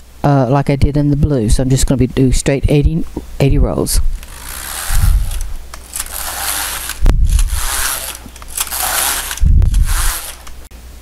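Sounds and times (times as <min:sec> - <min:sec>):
knitting machine carriage scraping: 0:04.2 - 0:10.7.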